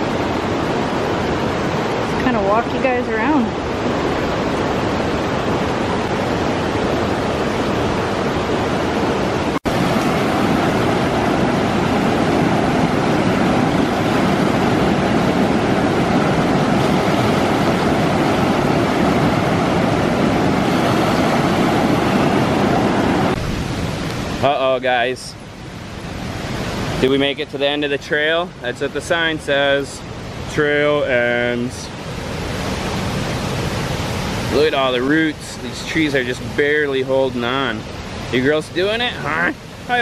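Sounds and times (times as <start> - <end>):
river rapids rushing: 0.0 - 40.0.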